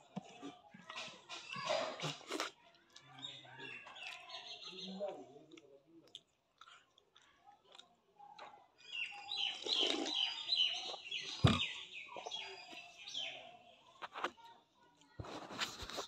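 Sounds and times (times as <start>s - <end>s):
birds chirping: 8.8s - 14.0s.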